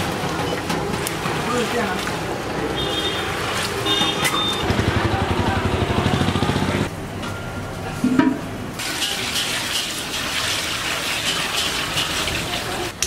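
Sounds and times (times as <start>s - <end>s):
water pouring into metal pot: 8.8s - 13.0s.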